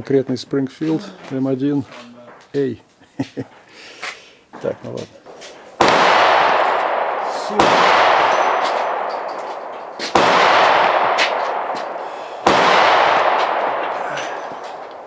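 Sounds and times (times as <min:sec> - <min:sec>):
rifle shots: 0:05.8 - 0:15.0.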